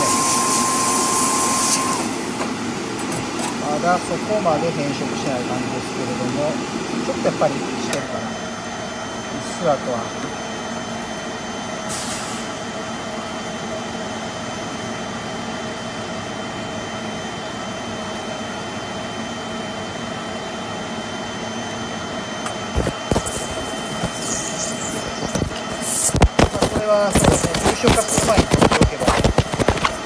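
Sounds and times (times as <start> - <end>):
machine hum: 12.5 - 30.0
faint whine: 21.0 - 30.0.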